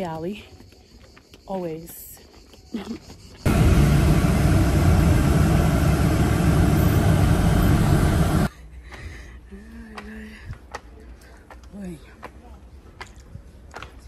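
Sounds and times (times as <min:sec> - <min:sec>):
motor vehicle rumble and hiss: 0:03.5 - 0:08.5.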